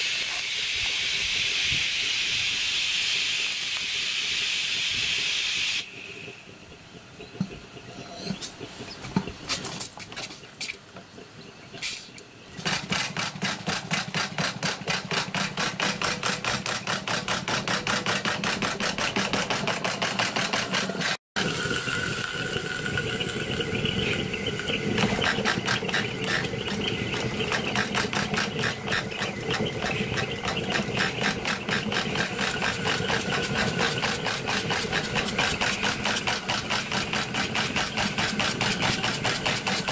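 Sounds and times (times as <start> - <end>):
steam exhaust chuffs: 0.0 - 6.8, 21.4 - 39.9.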